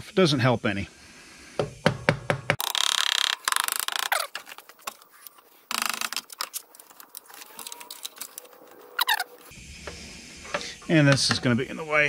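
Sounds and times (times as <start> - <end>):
hand tools clicking and knocking: 9.9 - 11.5.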